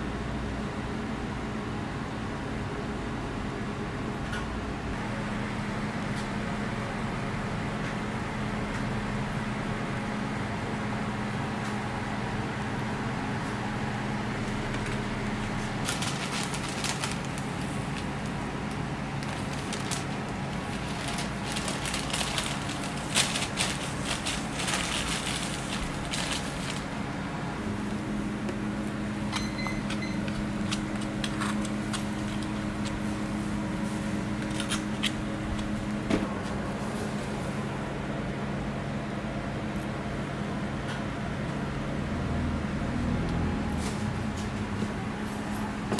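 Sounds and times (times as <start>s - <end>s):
kitchen machinery hum: 0.0s - 45.9s
paper wrapper crinkling: 14.8s - 27.0s, 30.3s - 33.2s.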